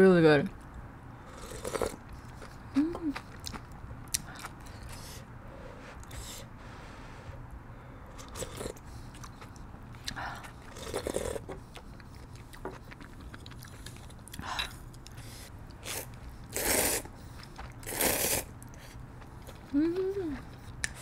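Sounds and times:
loud noodle slurp: 0:01.3 - 0:02.0, 0:15.8 - 0:17.1, 0:17.8 - 0:18.5
chewing: 0:01.4 - 0:05.0, 0:08.2 - 0:21.0.

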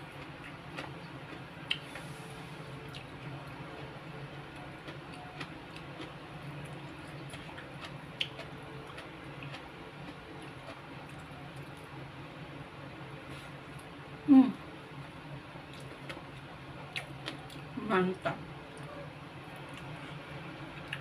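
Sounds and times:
person chewing: 0:00.2 - 0:02.0, 0:04.5 - 0:11.8, 0:16.9 - 0:17.6.

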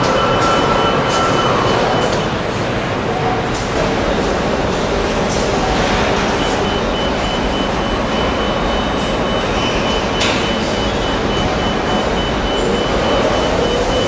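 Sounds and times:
rapid high electronic beeps: 0:00.0 - 0:02.3, 0:06.4 - 0:14.0.

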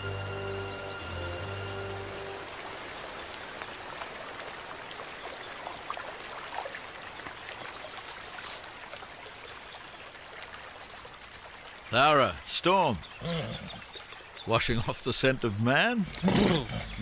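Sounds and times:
held music chord: 0:00.0 - 0:02.9
creek water over rocks: 0:00.0 - 0:17.0
small water splashes: 0:02.7 - 0:12.0.

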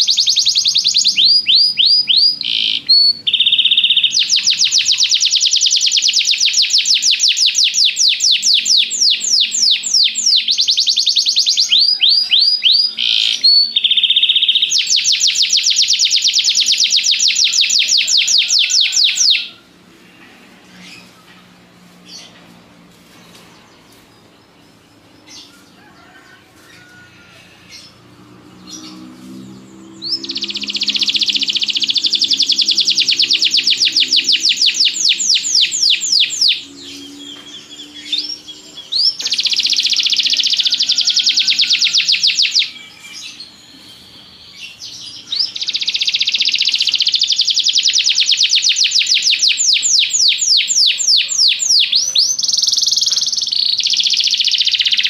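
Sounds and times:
canary chirping and trilling: 0:00.0 - 0:19.6, 0:27.7 - 0:55.0.

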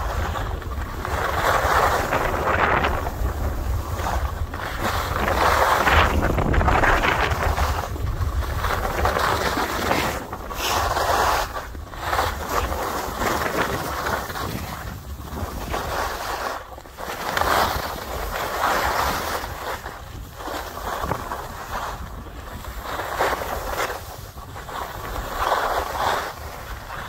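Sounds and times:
skis hissing over snow: 0:00.0 - 0:27.0
wind buffeting microphone: 0:00.0 - 0:27.0.

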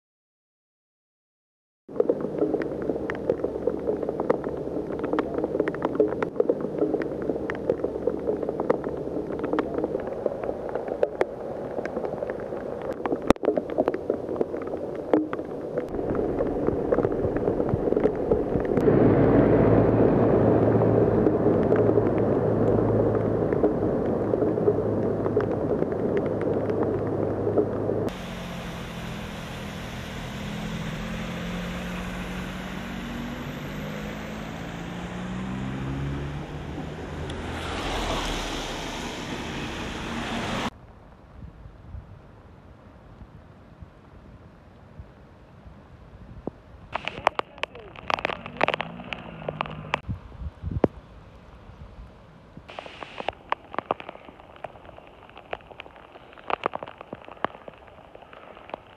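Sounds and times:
heavy rain on flooded street: 0:08.4 - 0:40.7, 0:47.0 - 0:50.0, 0:52.7 - 0:58.9
car pushing through water: 0:15.9 - 0:40.7, 0:47.0 - 0:50.0
bus driving through floodwater: 0:18.8 - 0:25.7, 0:27.1 - 0:40.7, 0:47.0 - 0:50.0.

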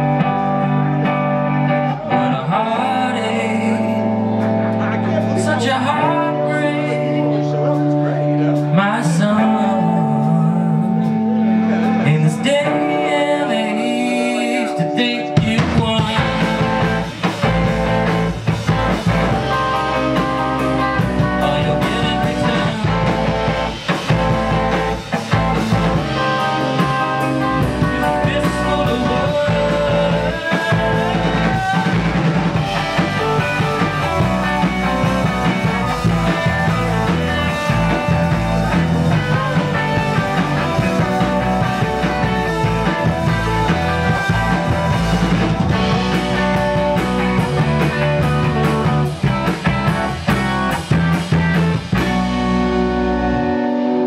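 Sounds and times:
rock band playing live: 0:00.0 - 0:54.0.

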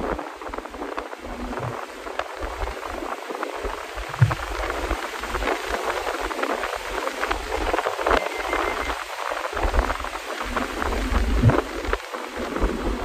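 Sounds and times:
wind buffeting microphone: 0:00.0 - 0:13.0
car road noise: 0:03.9 - 0:04.9.

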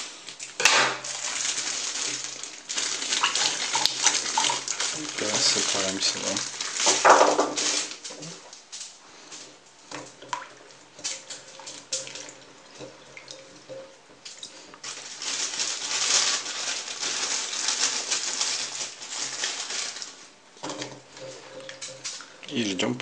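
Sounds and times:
small water splashes: 0:01.2 - 0:07.2.

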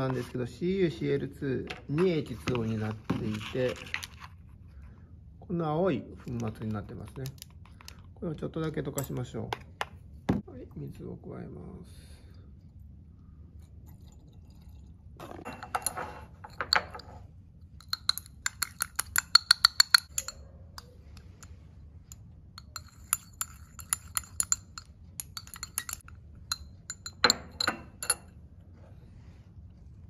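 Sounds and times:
glass rod clinking in beaker: 0:15.4 - 0:20.9, 0:22.1 - 0:28.3.

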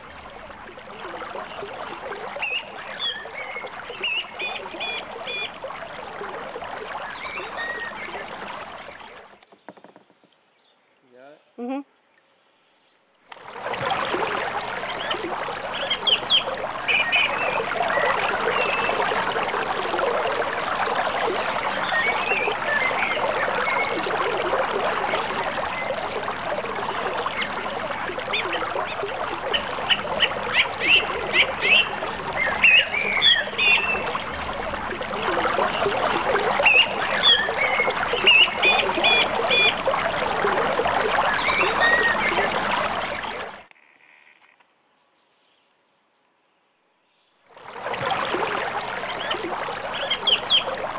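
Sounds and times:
creek water flowing: 0:00.0 - 0:43.7, 0:47.4 - 0:50.9
birds chirping and trilling: 0:02.4 - 0:05.5, 0:14.9 - 0:19.6, 0:28.3 - 0:34.2, 0:36.6 - 0:39.8, 0:49.1 - 0:50.8.

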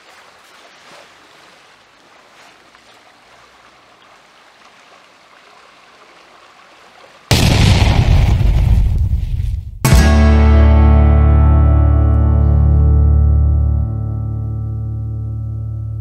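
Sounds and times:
running water: 0:00.0 - 0:07.3
loud deep boom: 0:07.3 - 0:10.8.

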